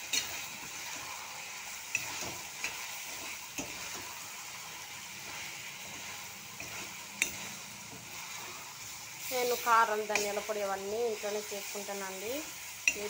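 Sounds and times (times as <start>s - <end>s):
chicken sizzling in a pan: 0.0s - 13.0s
spatula striking pan: 1.8s - 4.1s, 6.6s - 8.1s, 10.0s - 10.5s, 12.8s - 13.0s.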